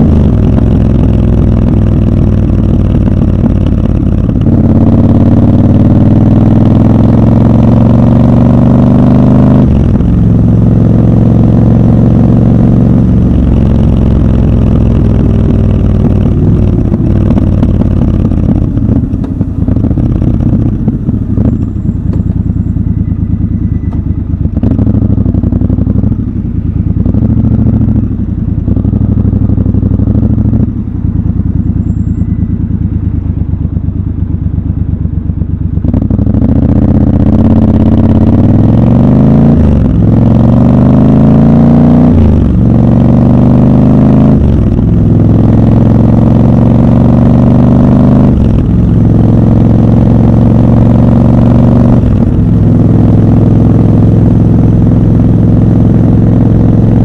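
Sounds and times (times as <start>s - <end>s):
motorcycle engine idling and revving: 0.0s - 57.0s.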